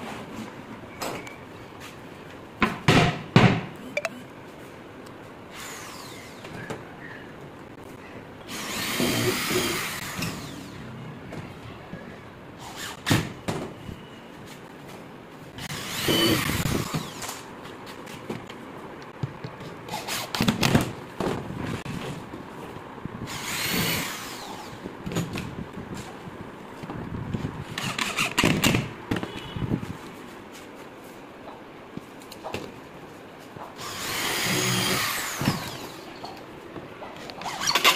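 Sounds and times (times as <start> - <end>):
cordless drill motor whine: 15.6 - 17.4, 33.8 - 36.1.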